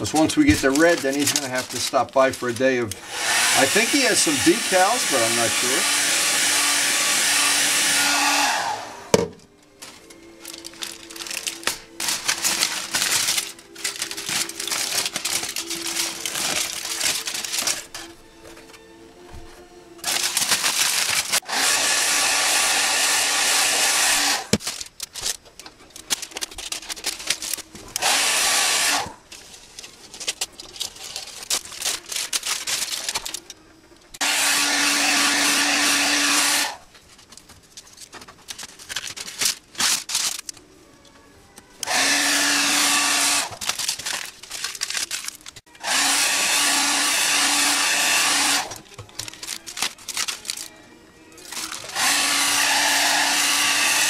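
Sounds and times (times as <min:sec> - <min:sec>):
tin foil and tape crackling: 0:00.0 - 0:05.8, 0:09.8 - 0:18.8, 0:20.0 - 0:21.5, 0:24.4 - 0:34.2, 0:36.7 - 0:45.8, 0:47.1 - 0:54.0
heat gun blowing: 0:02.9 - 0:09.3, 0:20.0 - 0:24.6, 0:27.9 - 0:29.2, 0:34.2 - 0:36.8, 0:41.8 - 0:43.6, 0:45.8 - 0:48.8, 0:51.4 - 0:54.0.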